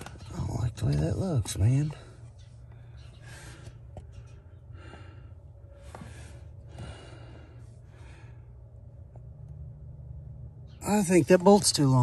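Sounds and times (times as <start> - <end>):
steady low hum: 0.0 - 12.0
man breathing: 2.1 - 8.8.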